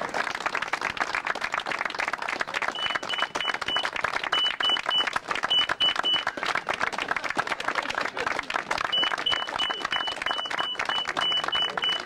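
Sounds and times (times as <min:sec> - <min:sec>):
crowd applauding: 0:00.0 - 0:12.0
short high electronic beeps: 0:02.8 - 0:03.8, 0:08.9 - 0:12.0.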